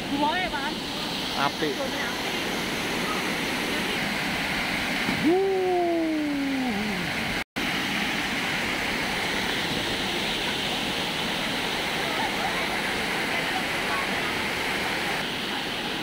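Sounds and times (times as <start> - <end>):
waterfall rushing over rocks: 0.0 - 16.0
long rising and falling call: 5.2 - 7.2.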